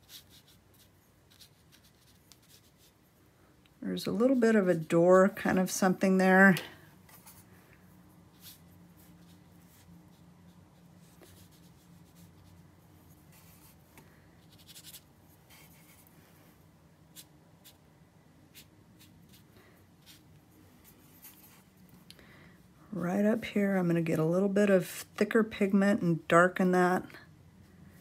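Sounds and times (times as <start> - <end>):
brush swirling and stroking paint: 0.0 - 3.3, 7.0 - 17.9, 18.5 - 21.9
low steady hum: 0.0 - 28.0.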